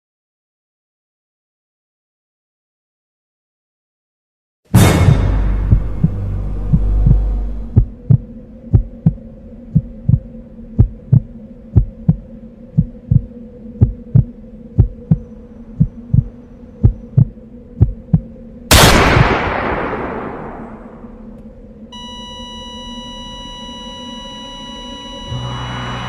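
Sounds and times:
loud ringing hit: 0:04.7 - 0:08.1, 0:18.7 - 0:21.2
heartbeat double thumps: 0:04.8 - 0:18.4
low drone: 0:04.8 - 0:26.0.

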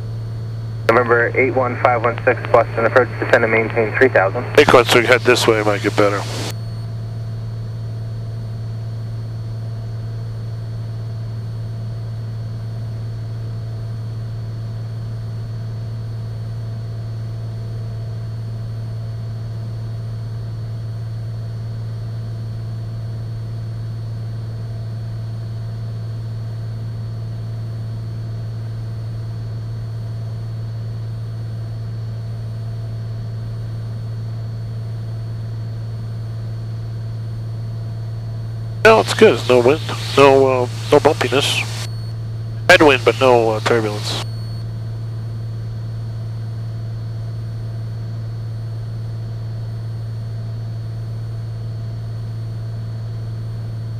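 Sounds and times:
propeller plane engine drone: 0:00.8 - 0:06.5, 0:38.9 - 0:41.9, 0:42.7 - 0:44.2.

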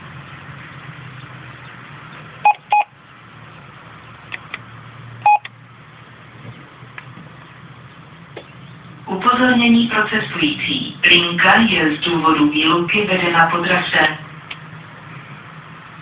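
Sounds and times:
keypad beeps: 0:02.4 - 0:02.9, 0:05.2 - 0:05.5.

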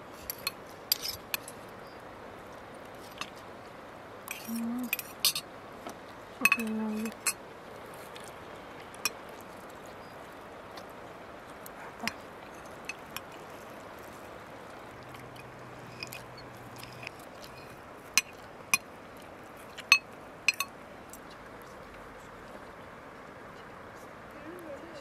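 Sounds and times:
steady background hiss: 0:00.0 - 0:25.0
cutlery clinking on plates: 0:06.4 - 0:07.4.

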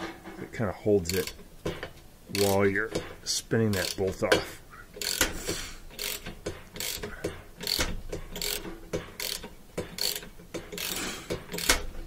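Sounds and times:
ratchet wrench clicking: 0:01.1 - 0:01.4, 0:02.3 - 0:02.6, 0:03.7 - 0:04.2, 0:05.0 - 0:12.0.

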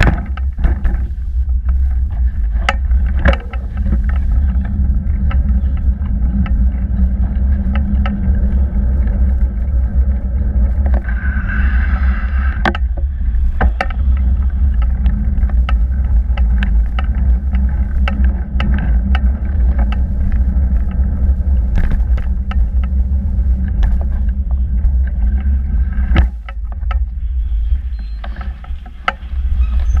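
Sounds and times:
bike rattling over bumps: 0:00.0 - 0:30.0
wind and tyre rumble: 0:00.0 - 0:30.0.

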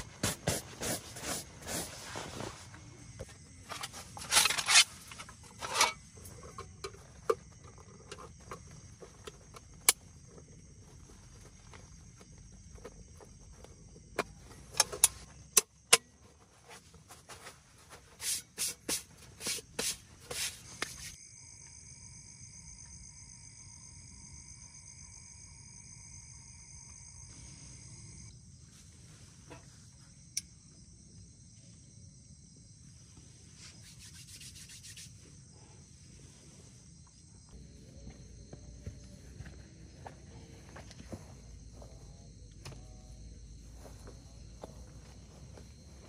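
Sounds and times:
high-pitched insect drone: 0:20.4 - 0:28.4.

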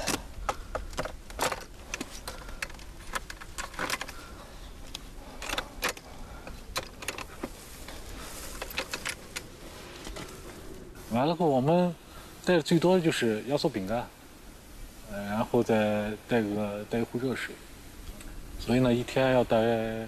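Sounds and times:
camera gear clicking and rattling: 0:00.0 - 0:10.8.

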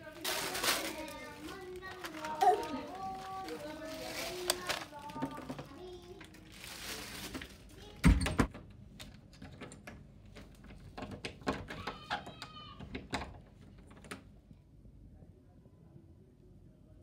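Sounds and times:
doorknob and bolt metal rattles: 0:09.3 - 0:14.2.

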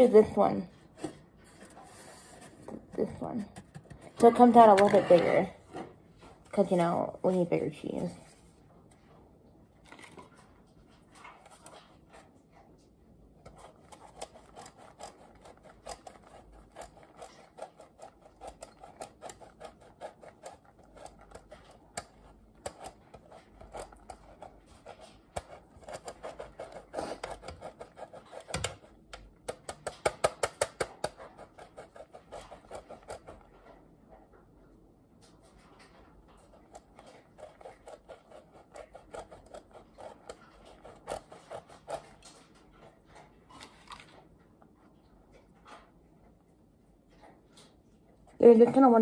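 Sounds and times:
cheese grater rasping: 0:13.5 - 0:29.6, 0:36.5 - 0:42.3.

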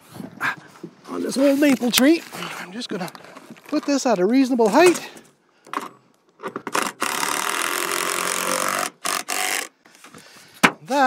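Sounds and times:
power drill driving a fastener: 0:06.6 - 0:09.8.

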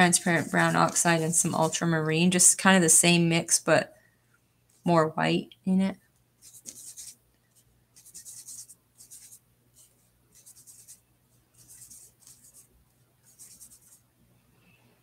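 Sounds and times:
paintbrush swishing on palette: 0:00.0 - 0:02.1.

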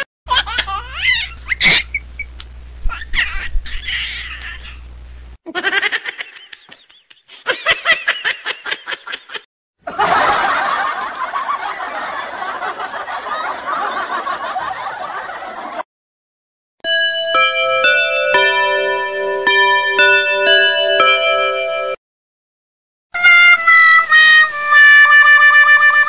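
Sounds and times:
comedy laughter: 0:00.0 - 0:02.1, 0:05.4 - 0:15.8.

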